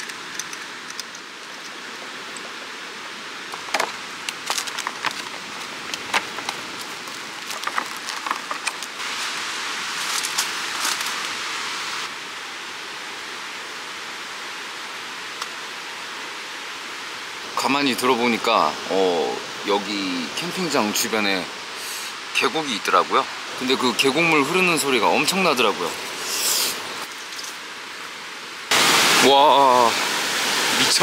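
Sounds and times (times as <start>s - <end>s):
small metal items clicking: 0.0s - 1.8s
stream rushing: 0.0s - 31.0s
plastic container crinkling: 6.0s - 9.0s.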